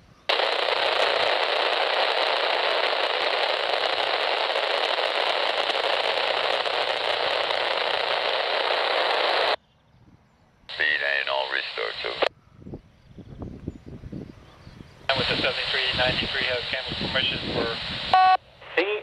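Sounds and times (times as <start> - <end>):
radio static hiss: 0.3 - 9.6, 10.7 - 12.3, 15.1 - 19.0.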